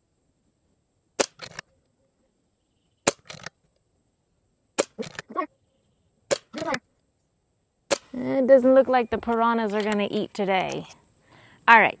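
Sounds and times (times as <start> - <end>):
air rifle firing: 1.2 - 1.6, 3.0 - 3.5, 6.3 - 6.7, 7.9 - 8.2
pellet striking target: 4.8 - 5.4, 6.3 - 6.8.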